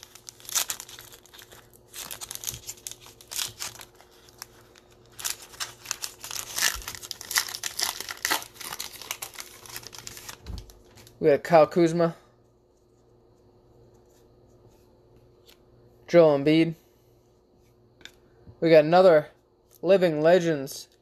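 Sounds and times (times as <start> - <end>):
foil wrapper tearing and crinkling: 0.0 - 11.2.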